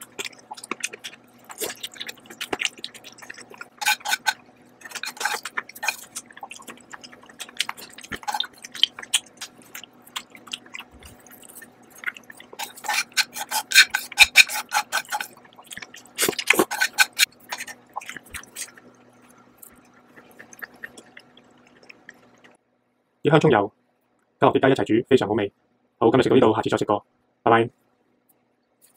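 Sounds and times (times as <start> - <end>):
noodles slurped and chewed: 0.0 - 22.6.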